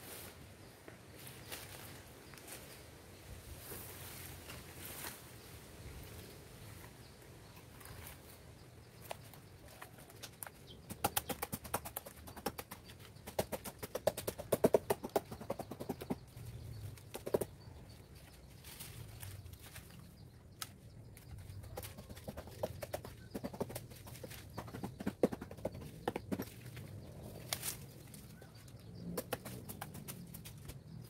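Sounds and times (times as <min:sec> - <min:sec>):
palm fibre crackling and snapping: 0:18.6 - 0:22.2, 0:26.4 - 0:30.8.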